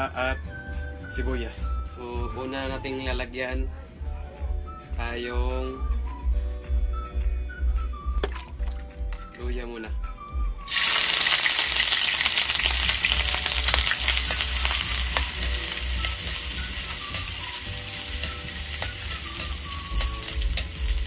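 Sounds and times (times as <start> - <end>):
ginger sizzling in hot oil: 10.7 - 21.0.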